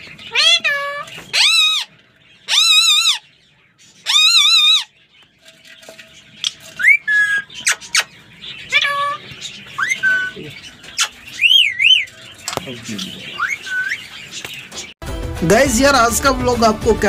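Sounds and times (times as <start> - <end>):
parrot chirps whistles and squawks: 0.0 - 3.4, 4.0 - 5.0, 6.4 - 14.4
parrot harsh wavering call: 0.2 - 3.3, 4.0 - 4.9, 6.8 - 10.4, 13.3 - 14.1.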